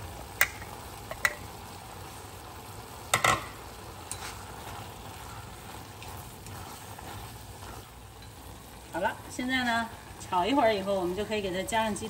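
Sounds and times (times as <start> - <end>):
vegetables sizzling in a pot: 0.0 - 12.0.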